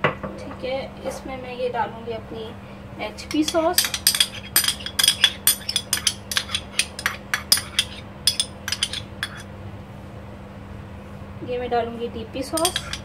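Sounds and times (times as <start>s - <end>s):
dish clinking against ceramic bowl: 3.3s - 9.4s, 12.6s - 13.0s.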